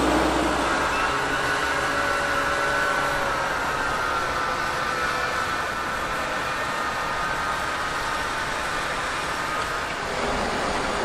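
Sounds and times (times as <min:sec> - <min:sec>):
steady high whine: 0:00.0 - 0:11.0
tractor engine under load: 0:00.0 - 0:11.0.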